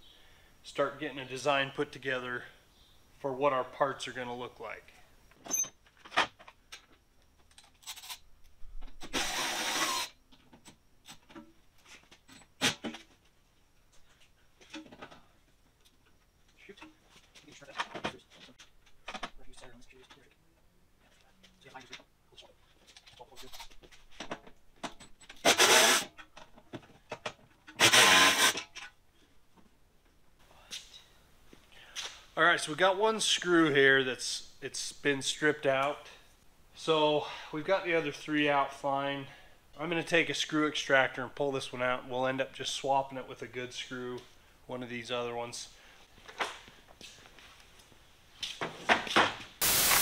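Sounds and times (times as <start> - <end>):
cordless power driver: 25.4 - 26.1, 27.8 - 28.6.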